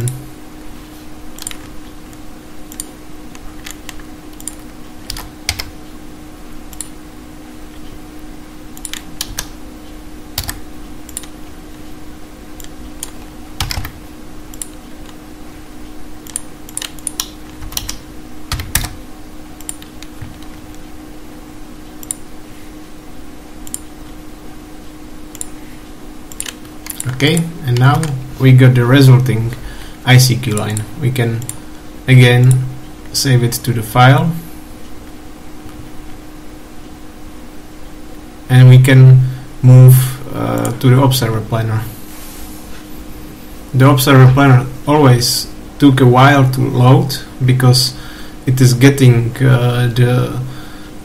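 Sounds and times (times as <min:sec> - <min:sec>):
steady low hum: 0:00.0 - 0:51.0
typing on computer keyboard: 0:10.4 - 0:11.3, 0:13.0 - 0:14.0, 0:16.3 - 0:19.0.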